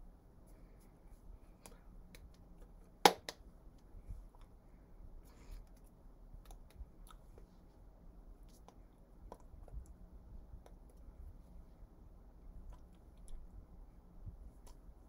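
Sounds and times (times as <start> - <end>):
hands clicking and tapping: 1.6 - 3.9
hand slap: 3.0 - 3.4.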